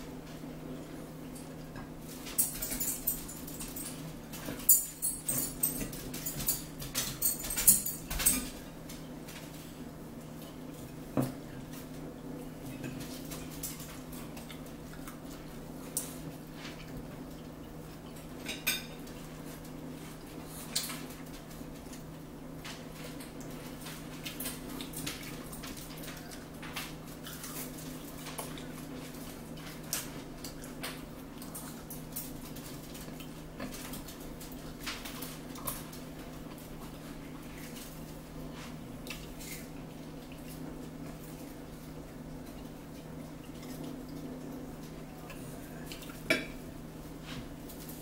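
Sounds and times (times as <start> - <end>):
forks clinking on plates: 2.3 - 8.6, 18.4 - 19.1.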